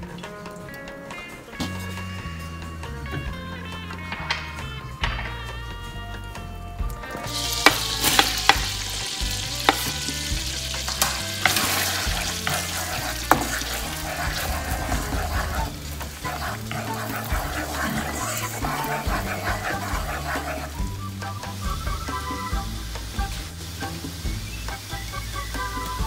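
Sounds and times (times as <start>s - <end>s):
garlic sizzling in a pan: 7.0s - 26.0s
spatula tapping a pan: 7.4s - 15.5s.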